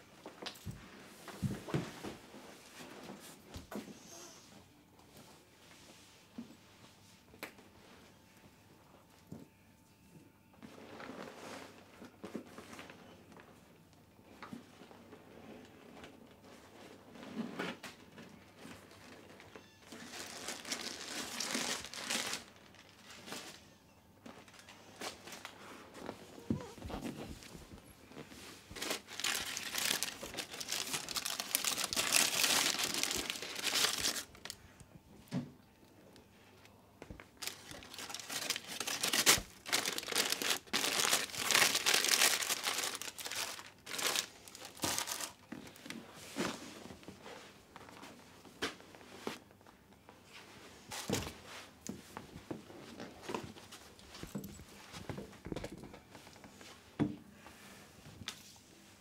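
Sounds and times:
snack packet crinkling: 0:20.0 - 0:23.5, 0:28.8 - 0:34.6, 0:37.4 - 0:45.4.

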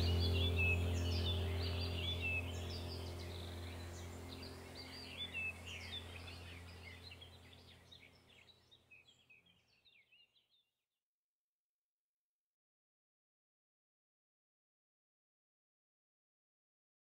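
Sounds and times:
low steady hum: 0:00.0 - 0:09.6
small birds chirping and whistling: 0:00.0 - 0:10.4.

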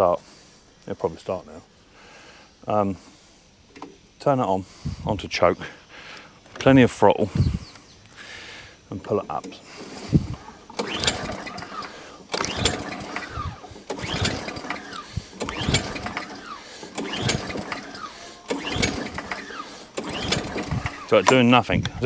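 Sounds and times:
recoil starter pulls: 0:09.0 - 0:22.0
engine turning over: 0:09.3 - 0:21.8.

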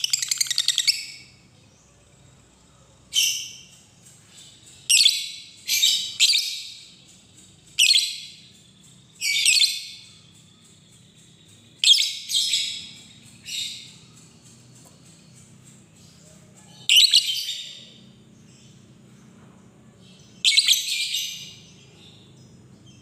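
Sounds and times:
bird shrill chattering calls: 0:00.0 - 0:01.3, 0:07.6 - 0:14.6, 0:16.0 - 0:18.1.

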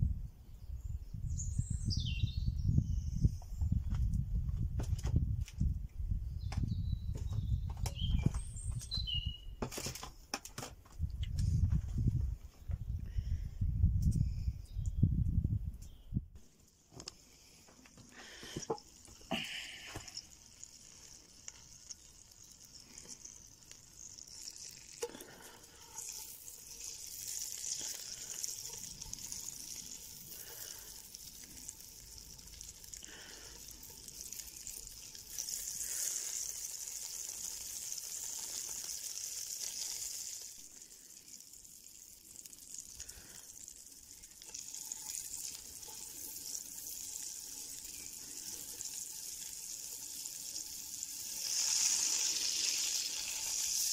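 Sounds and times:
patties sizzling in hot fat: 0:16.7 - 0:53.9.

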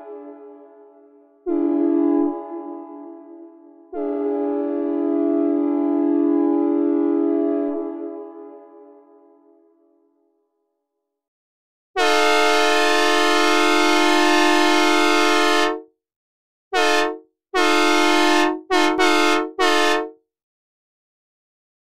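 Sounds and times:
locomotive air horn blasts: 0:01.4 - 0:09.0, 0:12.0 - 0:15.8, 0:16.8 - 0:20.1.

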